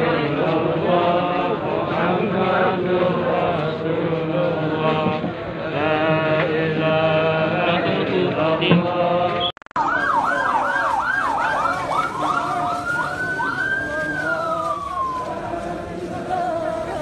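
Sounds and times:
crowd of men chanting: 0:00.0 - 0:09.5, 0:11.4 - 0:17.0
emergency vehicle siren: 0:09.7 - 0:17.0.

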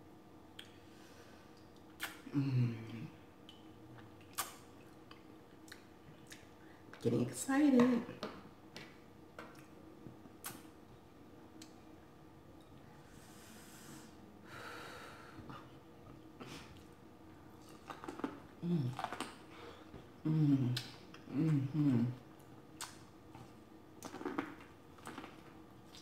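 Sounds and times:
person humming mm: 0:02.0 - 0:03.2, 0:18.6 - 0:19.2, 0:20.2 - 0:22.2
breathy hiss: 0:13.0 - 0:15.4.

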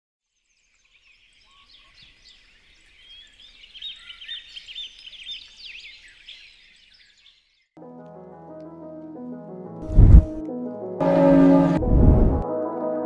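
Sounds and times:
small birds chirping: 0:00.3 - 0:07.8.

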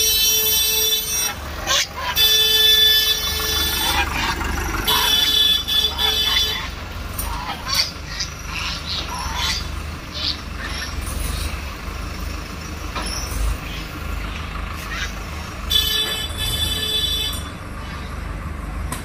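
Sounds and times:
horn sounding: 0:00.0 - 0:06.8, 0:15.7 - 0:17.6
tractor diesel engines running: 0:00.0 - 0:19.0.

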